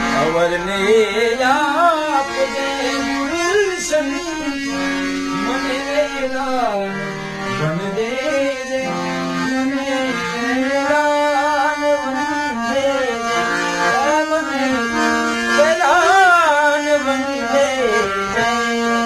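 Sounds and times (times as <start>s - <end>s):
harmonium: 0.0s - 19.0s
man singing: 0.0s - 19.0s.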